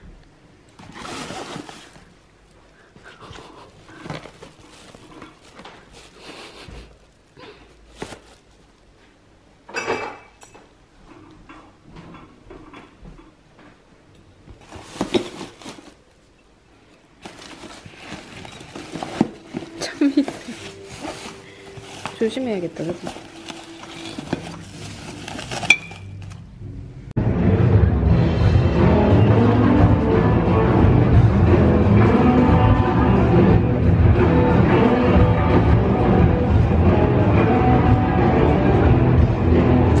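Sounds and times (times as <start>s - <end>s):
backpack fabric rustling: 0.8s - 2.2s, 3.5s - 7.1s, 7.8s - 8.6s, 14.6s - 16.0s, 17.2s - 26.4s
foil wrapping rustling: 0.8s - 2.2s, 2.8s - 8.8s, 14.6s - 16.1s, 17.2s - 26.5s.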